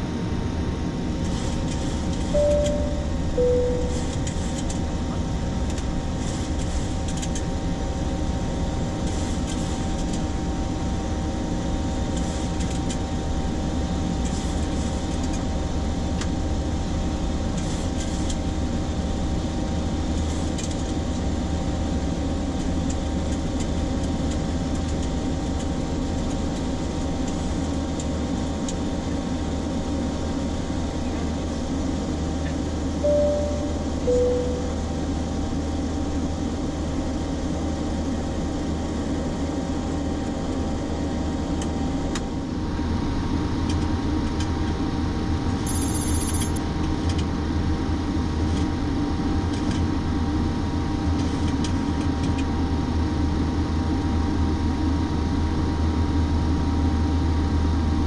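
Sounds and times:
low engine drone: 0.0 - 12.4, 27.0 - 47.0
faint steady tone: 2.3 - 4.2, 33.0 - 35.2.

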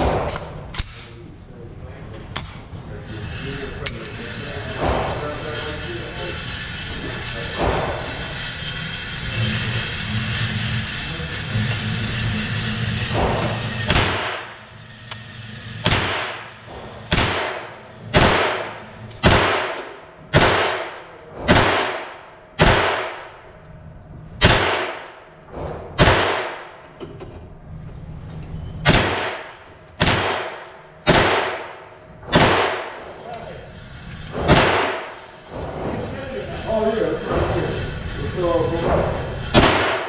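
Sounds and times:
gunshots echoing indoors: 0.0 - 1.1, 13.2 - 14.6, 15.8 - 23.5, 24.4 - 26.9, 28.8 - 33.1, 34.3 - 35.8, 39.4 - 40.0.

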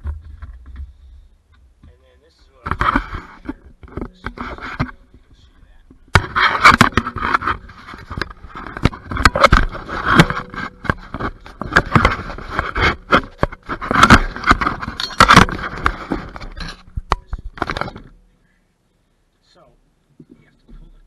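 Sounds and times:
carpet scraping and rustling: 2.6 - 5.4, 6.2 - 18.2
sharp knocks and clicks: 5.9 - 18.2.

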